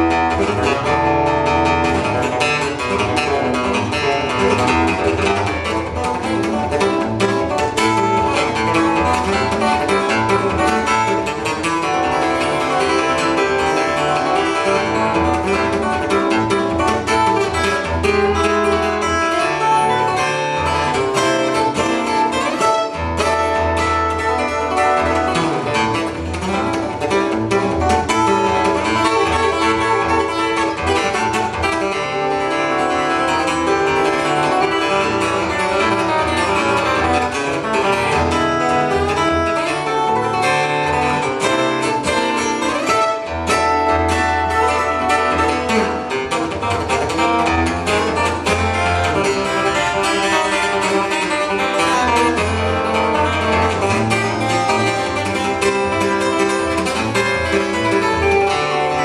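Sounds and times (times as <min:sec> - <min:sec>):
fingerstyle acoustic guitar: 0:00.0 - 0:59.0.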